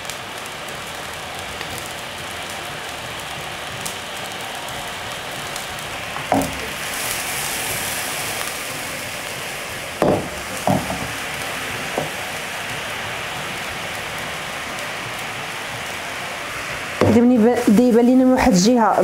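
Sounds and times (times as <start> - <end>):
syrup boiling in a pan: 0.0 - 18.8
pan knocking on burner grate: 6.2 - 6.8, 10.0 - 11.2, 12.0 - 12.2, 17.0 - 17.3.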